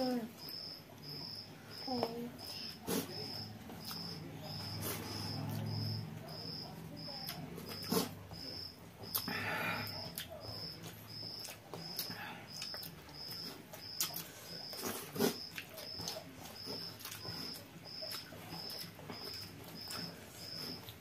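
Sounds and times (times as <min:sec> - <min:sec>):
chewing and lip smacking: 0:02.9 - 0:05.7, 0:07.1 - 0:09.3, 0:09.9 - 0:21.0.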